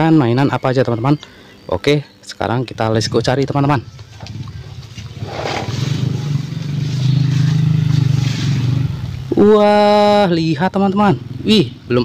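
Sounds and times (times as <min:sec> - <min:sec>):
vehicle engine passing: 0:04.2 - 0:10.2.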